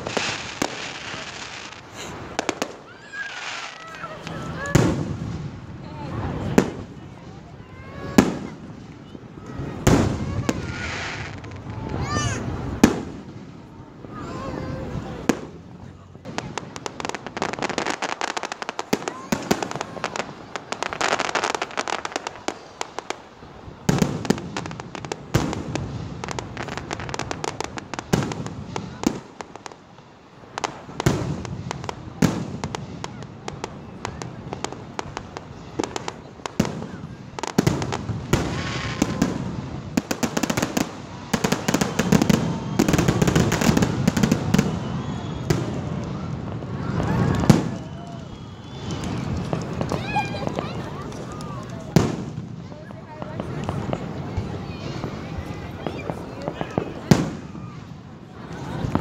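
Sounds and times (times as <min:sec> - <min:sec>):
fireworks bursting and crackling: 0:00.0 - 0:59.0.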